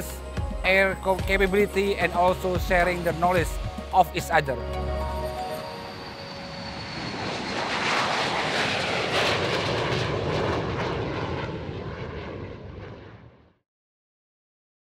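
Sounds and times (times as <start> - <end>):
jet engines roaring: 4.1 - 13.4.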